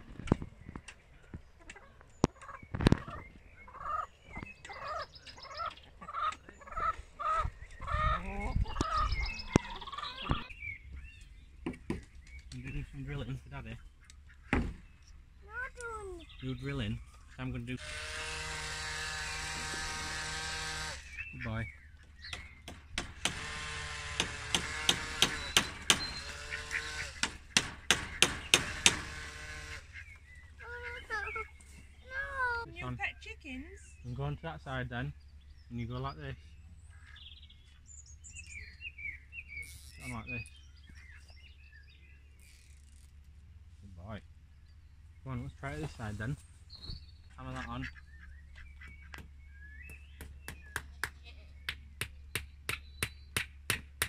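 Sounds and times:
hens clucking: 1.3 - 10.6, 24.4 - 33.5
hammer driving nails into wood: 22.3 - 26.4, 27.1 - 29.7
sharp knocks: 22.3 - 26.4, 27.1 - 29.4.

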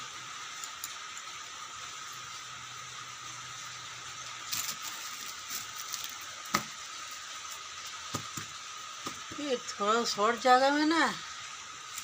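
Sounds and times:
steady background hiss: 0.0 - 12.0
clothes and small items handled: 4.5 - 6.7.

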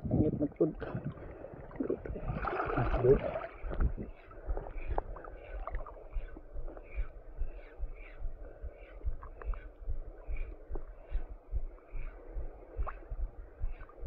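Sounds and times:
shallow water sloshing and lapping: 0.2 - 14.0.

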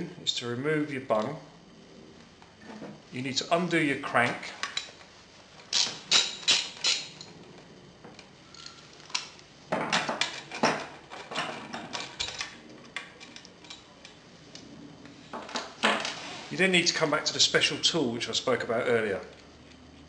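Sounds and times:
metal tools clinking and scraping: 5.7 - 7.3.

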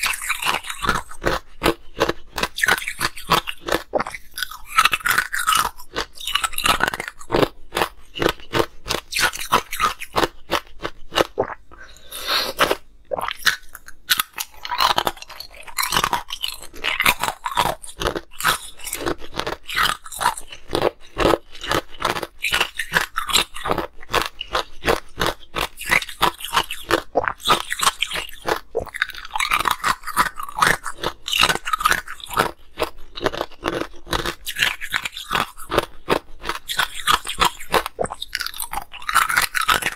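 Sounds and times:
ice cubes crunching: 13.4 - 39.9.

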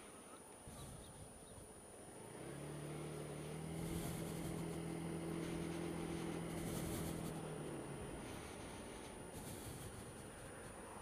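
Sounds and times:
scooter engine pulling away: 2.0 - 10.3.

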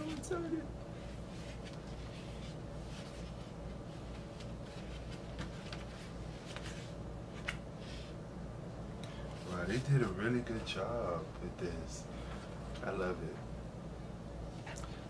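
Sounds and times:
low steady hum: 0.0 - 15.0
cardboard and paper rustling: 1.4 - 7.6.

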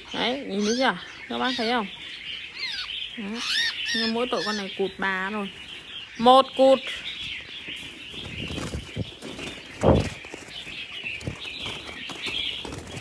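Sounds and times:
chatter of many birds: 0.0 - 13.0
birds flapping in a wire cage: 8.0 - 13.0.

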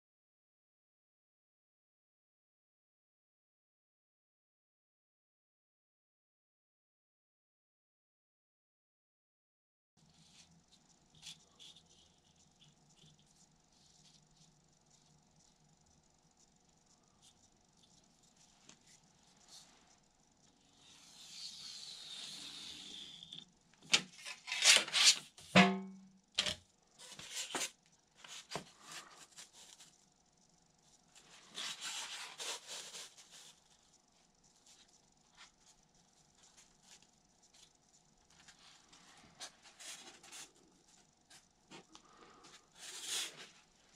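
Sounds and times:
rubbing and ticking on foam: 10.0 - 24.3, 27.0 - 43.9
faint steady hum: 10.0 - 43.9.

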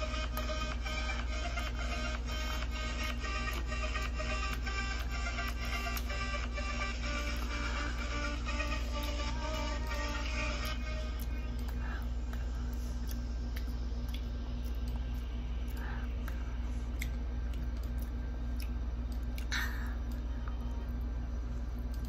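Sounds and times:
steady low hum: 0.0 - 22.0
chewing: 11.1 - 20.2.

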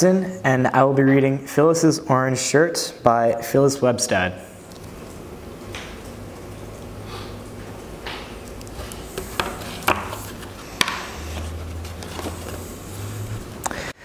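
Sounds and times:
low steady hum: 4.1 - 14.0
book rustling: 8.4 - 13.6.

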